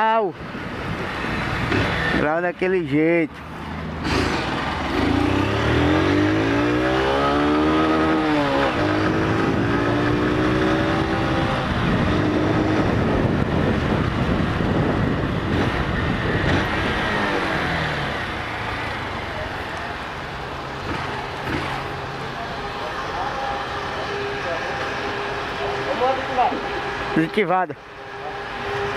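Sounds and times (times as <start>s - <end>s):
motorcycle engine accelerating: 3.8s - 27.3s
wind rush: 8.4s - 18.1s.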